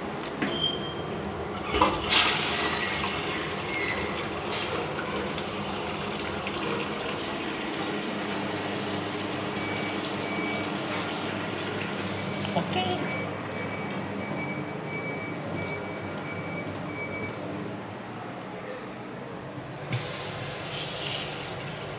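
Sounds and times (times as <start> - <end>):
water rushing into toilet bowl: 1.6 - 9.4.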